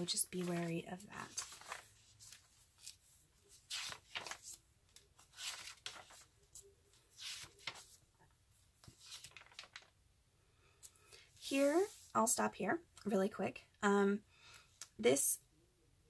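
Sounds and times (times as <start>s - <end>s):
paper pages flipping: 0.0s - 8.1s, 8.8s - 10.0s.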